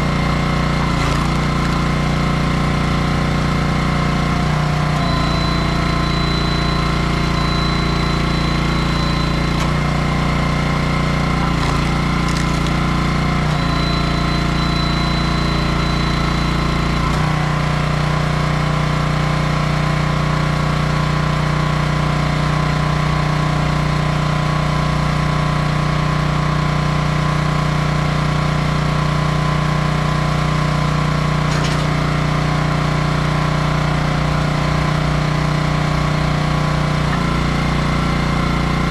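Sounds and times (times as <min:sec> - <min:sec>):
log splitter engine running: 0:00.0 - 0:38.9
thin high whine: 0:04.2 - 0:17.5.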